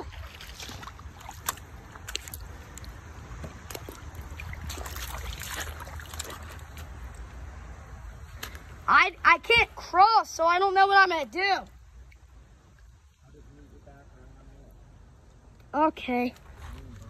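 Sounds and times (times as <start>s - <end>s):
water sloshing around feet: 0.0s - 8.8s
wind rumble on microphone: 2.1s - 7.1s.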